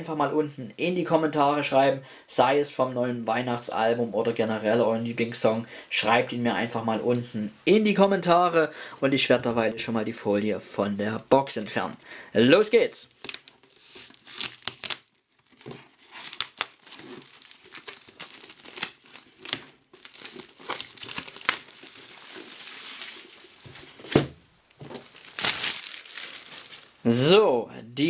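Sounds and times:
plastic wrap crinkling and tearing: 13.0s - 27.0s.

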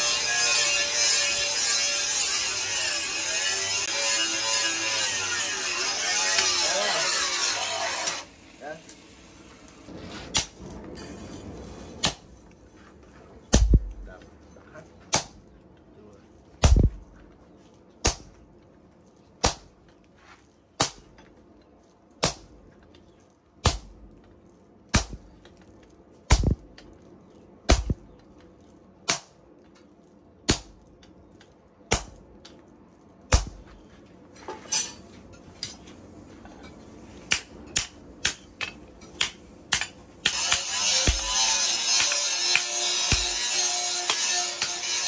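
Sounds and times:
hammer striking metal on anvil: 37.3s - 45.0s.

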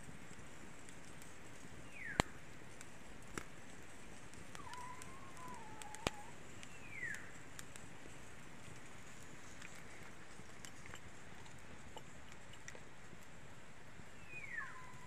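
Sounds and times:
wood fire popping: 0.0s - 15.0s
faint wavering whistle: 14.2s - 15.0s.

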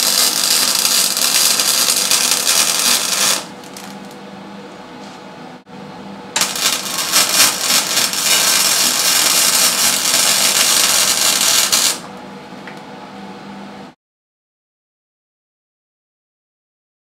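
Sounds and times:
arc welding hiss and crackle: 0.0s - 4.2s, 6.4s - 12.0s.

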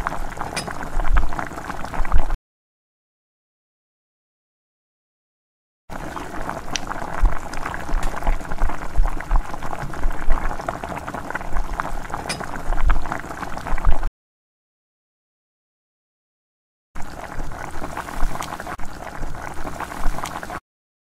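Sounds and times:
thick curry bubbling in a pot: 0.0s - 2.4s, 5.9s - 14.1s, 17.0s - 20.6s.

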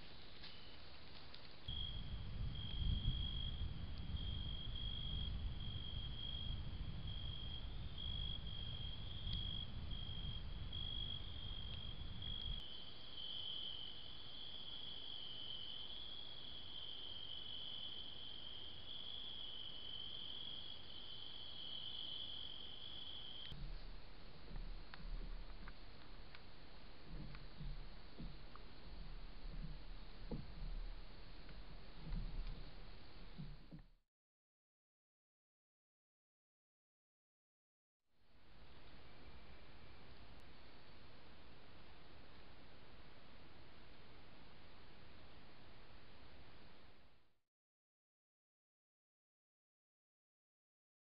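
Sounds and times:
crickets chirping: 0.0s - 33.8s
low rumble: 1.7s - 12.6s, 23.5s - 33.8s.

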